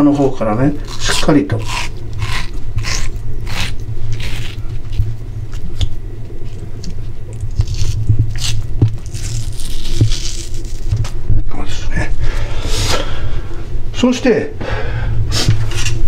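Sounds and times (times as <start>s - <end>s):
steady low hum: 0.0s - 16.0s
skin peeling off fish: 0.7s - 11.2s.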